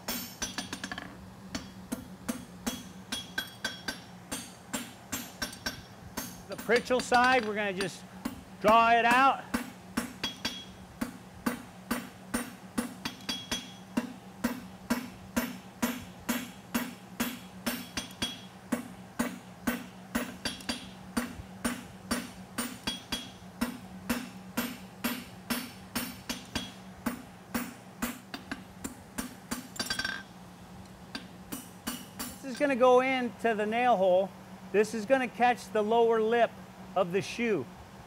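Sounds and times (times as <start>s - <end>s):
hammer striking hot metal on anvil: 0.0s - 30.2s, 31.1s - 32.4s.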